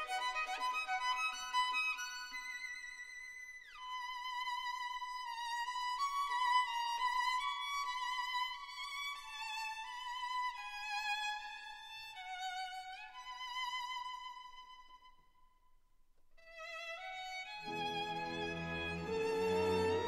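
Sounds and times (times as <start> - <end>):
slow violin melody: 16.5 - 20.0.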